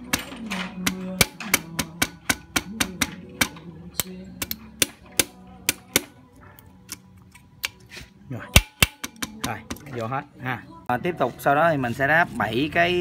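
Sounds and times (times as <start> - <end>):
rubber mallet tapping metal: 0.0 - 6.2, 8.6 - 9.9.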